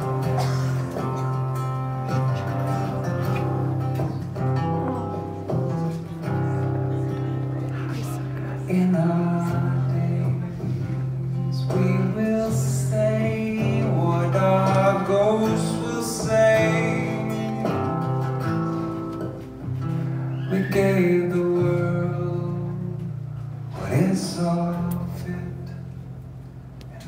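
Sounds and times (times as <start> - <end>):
acoustic guitar: 0.0 - 27.0
man singing: 7.9 - 18.4, 20.4 - 23.1, 23.7 - 25.9.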